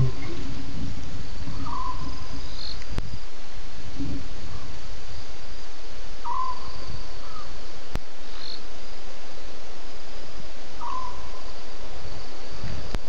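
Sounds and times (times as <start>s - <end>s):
small animal call: 0.0s - 0.6s, 1.4s - 2.9s, 6.2s - 7.6s, 10.8s - 11.6s
crickets chirping: 0.0s - 13.0s
steady hiss: 0.0s - 13.0s.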